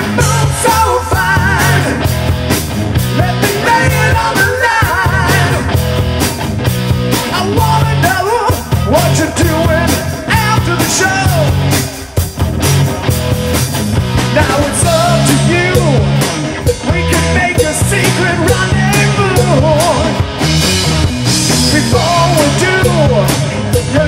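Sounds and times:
singer on microphone: 0.0 - 2.1, 3.2 - 5.8, 7.3 - 11.6, 14.3 - 20.2, 21.6 - 24.0
bass guitar: 0.0 - 24.0
drum kit: 0.0 - 24.0
electric guitar: 0.0 - 24.0.

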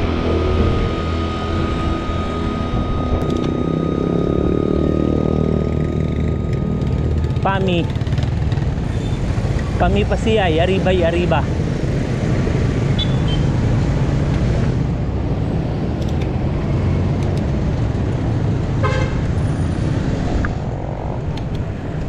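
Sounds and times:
road traffic noise: 0.0 - 22.0
vehicle horn toot: 13.0 - 13.5, 18.8 - 19.2.

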